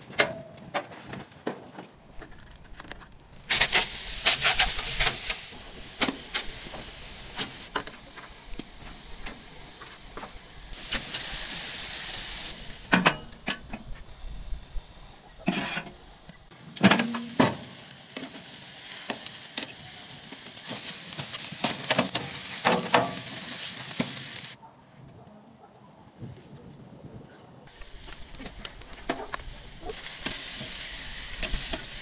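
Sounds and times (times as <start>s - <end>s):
chicken sizzling on grill: 3.3s - 24.6s, 27.7s - 32.0s
metal tongs clinking on grate: 21.6s - 23.4s.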